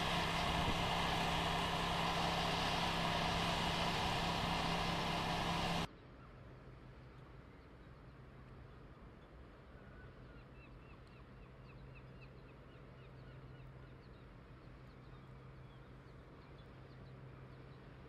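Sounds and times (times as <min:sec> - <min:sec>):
steady low hum: 0:00.0 - 0:05.9.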